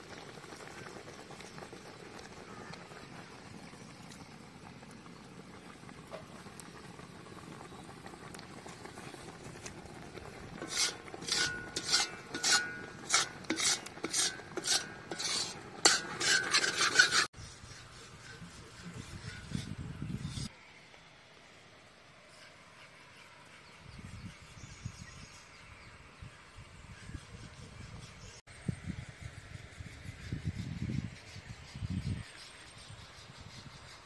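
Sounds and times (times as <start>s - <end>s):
metal spatula scraping in an iron pan: 9.7s - 20.5s.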